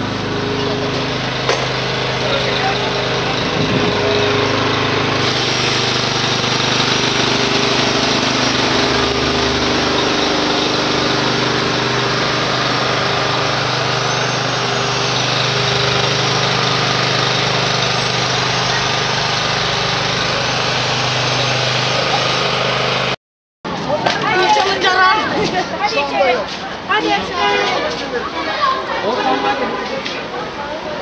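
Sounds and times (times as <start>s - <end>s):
small engine humming: 0.0s - 23.2s.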